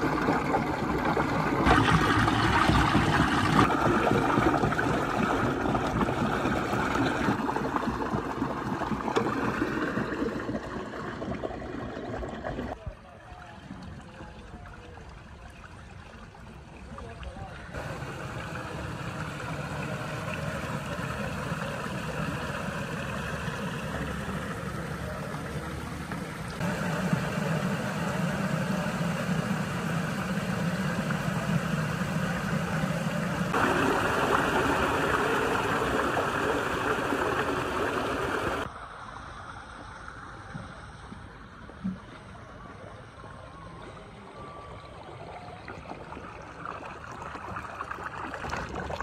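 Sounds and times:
muddy water running through channel: 0.0s - 49.0s
low hum: 17.7s - 46.2s.

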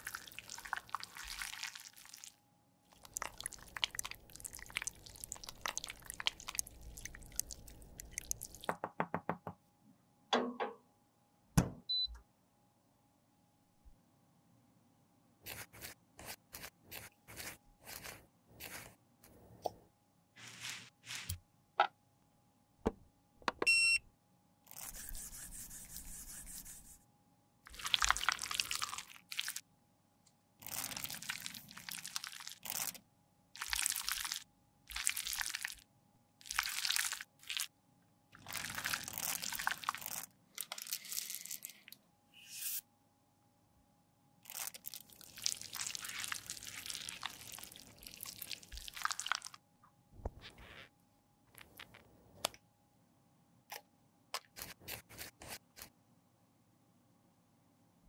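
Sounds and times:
spatulas squelching lip gloss: 2.9s - 8.7s.

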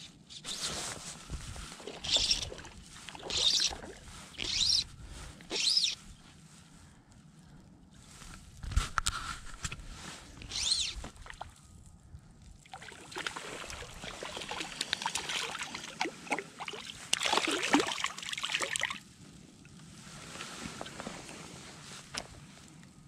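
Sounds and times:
fish splashing in water: 1.8s - 4.6s, 12.7s - 19.0s.

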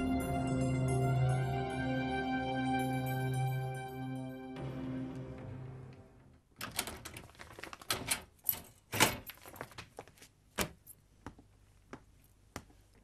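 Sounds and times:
door opening: 6.3s - 9.4s
keys rattling in a lock: 6.6s - 9.8s.

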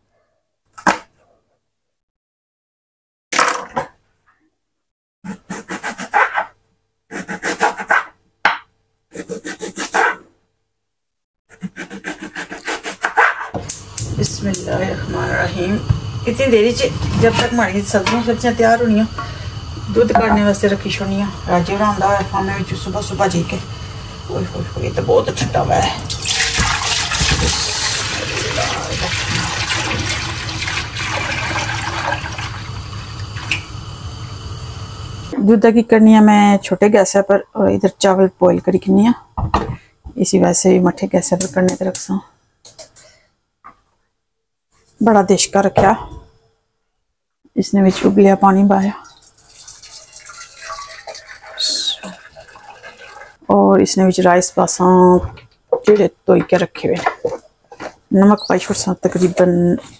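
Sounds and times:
milk pouring into metal pot: 26.0s - 33.6s, 49.0s - 53.4s.

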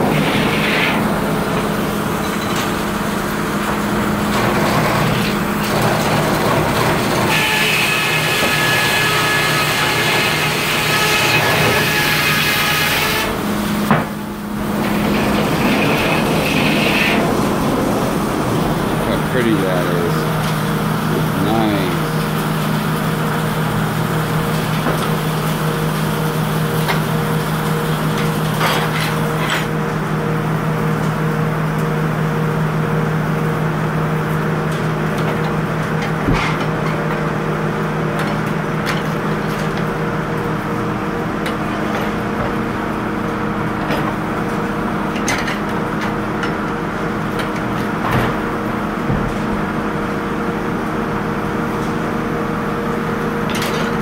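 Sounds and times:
sawmill machinery humming: 0.0s - 54.0s
wood and metal knocks: 13.9s - 14.2s.

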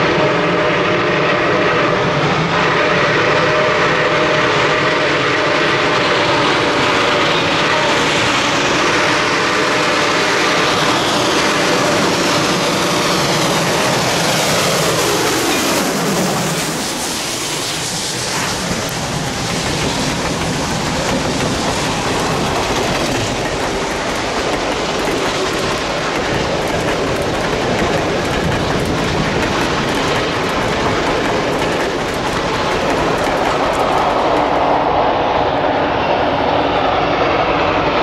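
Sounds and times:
train rumbling past: 0.0s - 38.0s
wheels clicking over rail joints: 18.3s - 34.7s.

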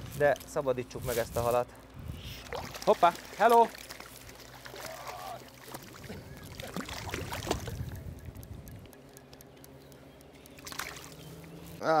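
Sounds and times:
fish splashing in water: 2.4s - 8.1s, 10.6s - 11.6s.

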